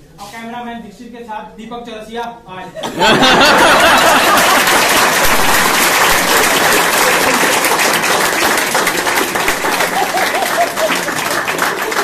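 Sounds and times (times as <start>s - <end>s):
crowd applauding: 3.3s - 12.0s.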